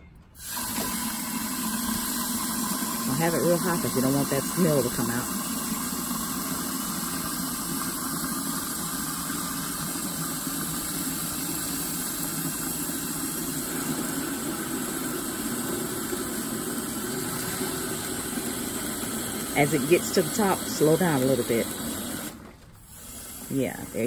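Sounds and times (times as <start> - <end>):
water running into a glass jar: 0.4 - 24.0.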